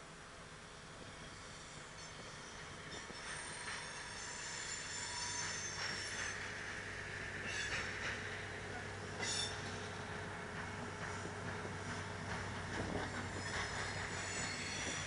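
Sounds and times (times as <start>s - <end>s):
diesel locomotive engine: 0.0s - 15.0s
high thin wheel squeal: 1.3s - 6.6s, 9.2s - 10.0s, 13.3s - 15.0s.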